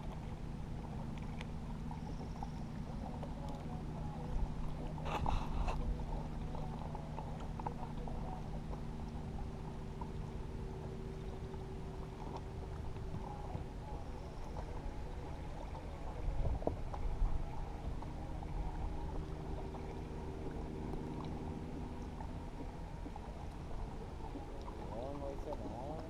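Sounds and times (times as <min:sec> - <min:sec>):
steady low hum: 0:00.0 - 0:26.0
water lapping against boat hull: 0:00.0 - 0:26.0.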